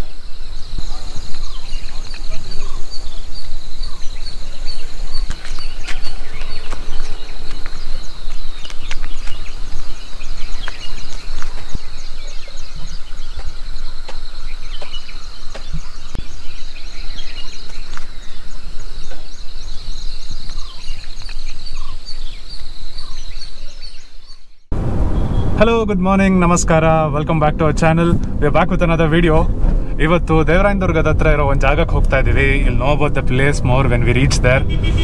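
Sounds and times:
birds calling: 0.0 - 25.6, 27.1 - 35.0
low rumble: 24.7 - 35.0.

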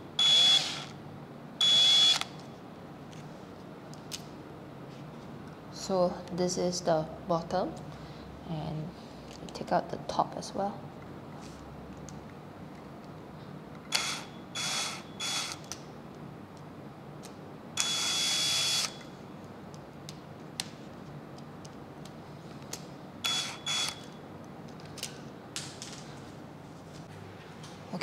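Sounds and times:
cordless drill whining: 0.2 - 0.9, 13.9 - 15.6.

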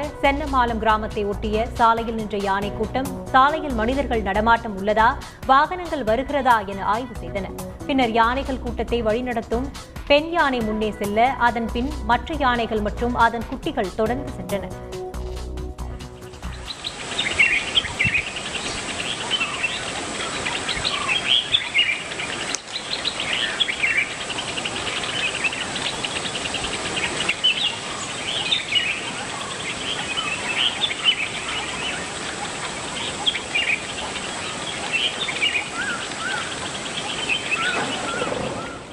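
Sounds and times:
background hiss: 15.0 - 38.9
birds chirping: 15.8 - 38.9.

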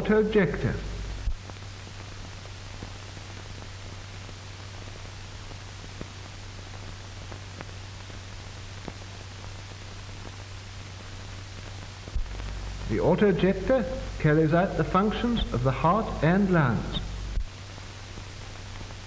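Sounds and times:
film soundtrack hiss and hum: 0.0 - 19.0
faint clicks and crackles: 5.9 - 12.9.

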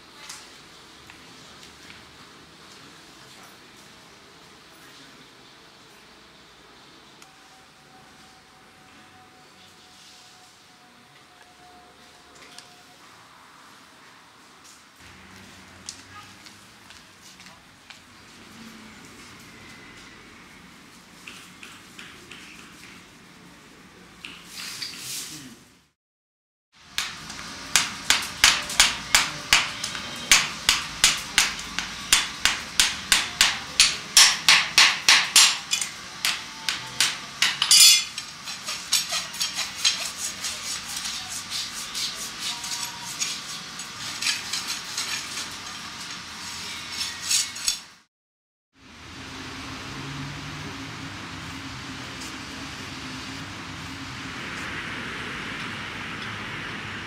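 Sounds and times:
hammering knocks: 27.0 - 37.9.

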